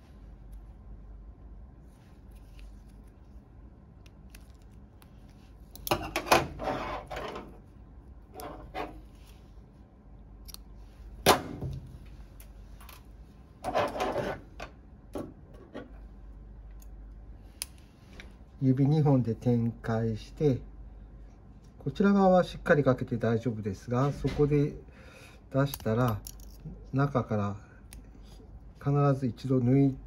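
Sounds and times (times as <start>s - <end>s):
surgical instruments clicking: 4.0s - 6.0s, 25.6s - 26.7s.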